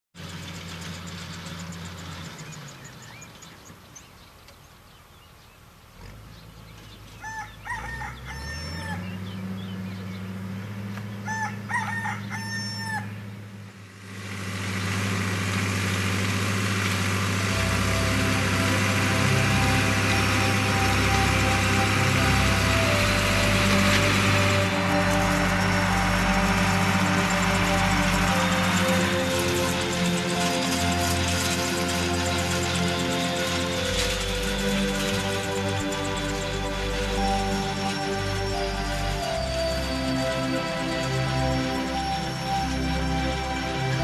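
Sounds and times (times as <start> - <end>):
tractor engine running: 0.2 - 44.0
rooster crowing: 7.2 - 9.2, 11.2 - 13.2.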